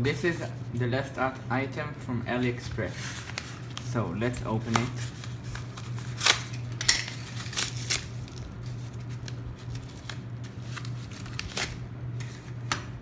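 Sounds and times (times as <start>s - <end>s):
steady low hum: 0.0s - 13.0s
plastic bag crinkling and ripping: 3.1s - 12.4s.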